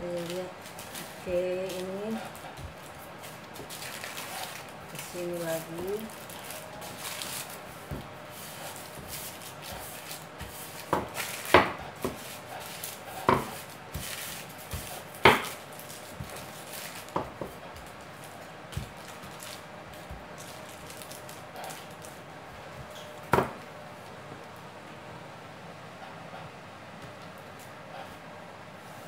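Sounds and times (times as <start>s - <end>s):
light rustling of paper: 0.0s - 22.2s.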